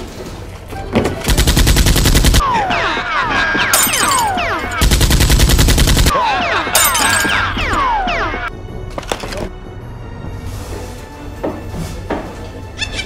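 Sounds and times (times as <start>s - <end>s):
rapid automatic gunfire: 1.3s - 2.4s, 4.8s - 6.2s.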